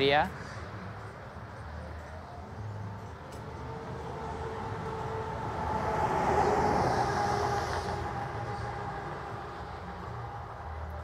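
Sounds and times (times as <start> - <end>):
vehicle passing by: 1.8 - 11.0.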